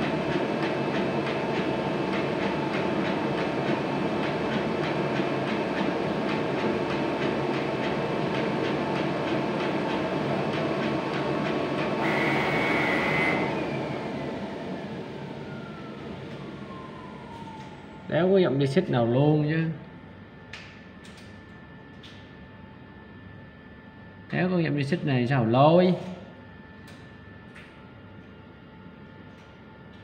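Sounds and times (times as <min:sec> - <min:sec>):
falling whine: 0:12.0 - 0:18.6.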